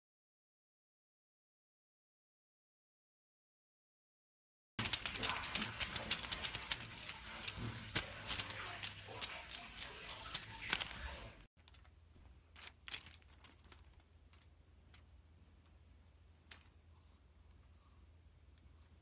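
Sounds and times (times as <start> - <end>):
cat claws clicking on wooden floor: 4.8 - 11.9.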